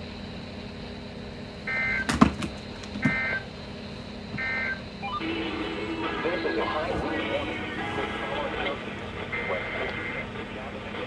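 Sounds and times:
low hum and hiss: 0.0s - 11.0s
broadcast audio: 5.2s - 11.0s
two-tone data bursts: 9.3s - 10.2s.

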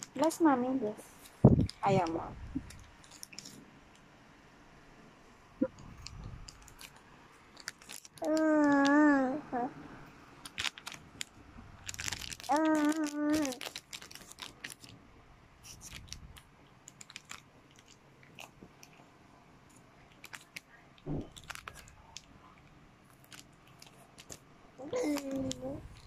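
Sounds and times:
plastic wrapper crinkling: 1.2s - 3.6s, 6.0s - 9.1s, 10.4s - 15.0s, 15.6s - 19.0s, 20.1s - 26.0s.

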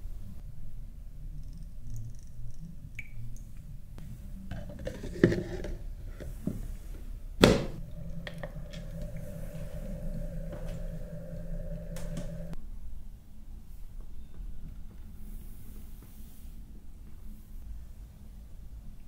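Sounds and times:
diffuser humming: 6.2s - 12.6s.

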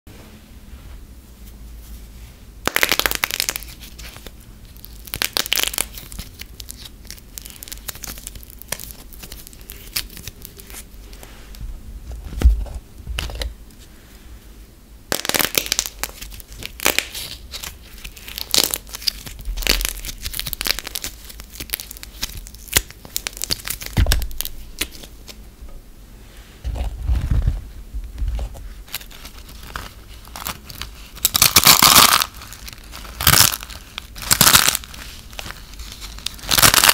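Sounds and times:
foil wrapper crinkling and tearing: 2.6s - 11.2s, 15.1s - 25.4s, 28.8s - 36.9s.

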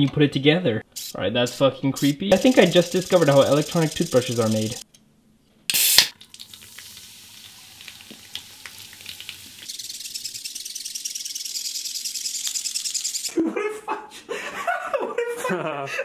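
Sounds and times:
toothbrush bristles scratching: 2.3s - 4.8s, 9.6s - 13.3s.

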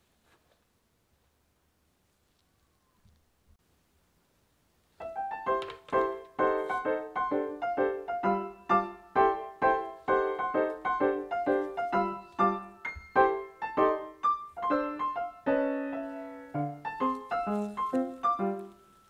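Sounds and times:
light piano tune: 5.0s - 19.0s.

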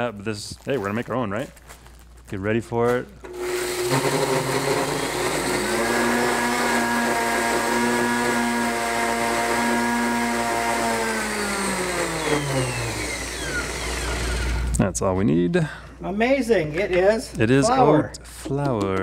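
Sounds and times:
blender grinding oats: 3.3s - 14.8s.

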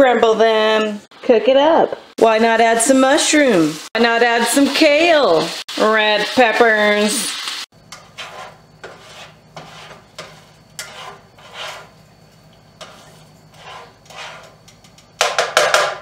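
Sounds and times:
spatula scraping frying pan: 7.8s - 15.0s.

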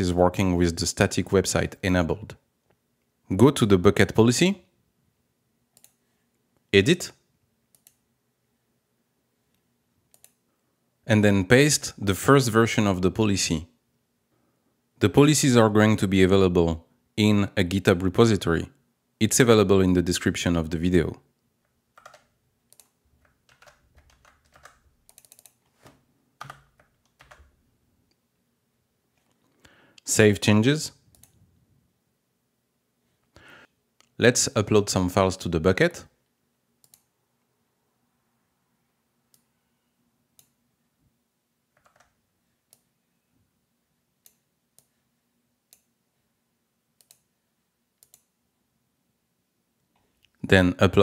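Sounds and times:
computer mouse clicks: 5.7s - 6.0s, 7.7s - 8.0s, 9.5s - 10.4s, 22.0s - 25.8s, 31.1s - 31.4s, 36.8s - 37.1s, 40.4s - 40.6s, 41.7s - 42.9s, 47.0s - 47.3s, 48.0s - 48.3s
keyboard keys clicking: 22.0s - 25.6s, 26.4s - 27.5s, 41.8s - 42.1s.

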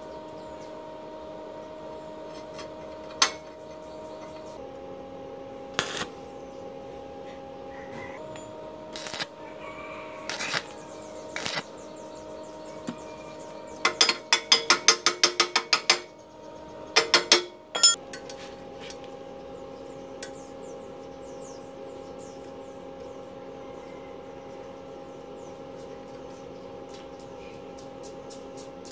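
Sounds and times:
steady hum: 0.0s - 28.9s
arc welding crackles: 5.6s - 6.4s, 8.2s - 16.2s, 24.9s - 28.9s.

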